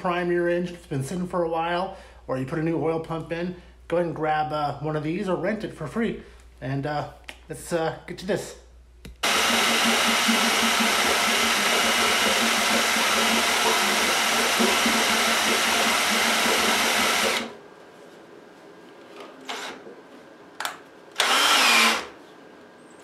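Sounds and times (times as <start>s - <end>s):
electric drill running under load: 9.2s - 17.6s, 21.2s - 22.2s.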